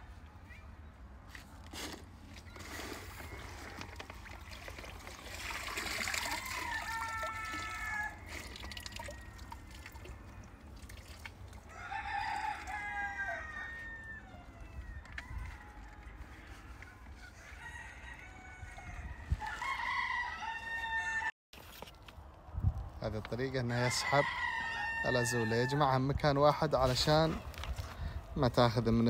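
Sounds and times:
water splashing and dripping: 2.6s - 11.7s
rooster crowing: 6.1s - 9.4s, 11.7s - 21.3s, 23.8s - 25.8s.

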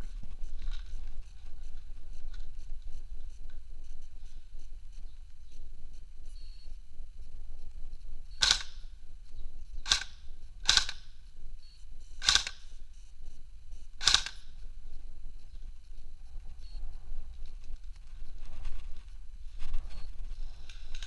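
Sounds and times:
airsoft gun shots: 8.4s - 8.9s, 9.8s - 11.2s, 12.2s - 12.7s, 14.0s - 14.6s.

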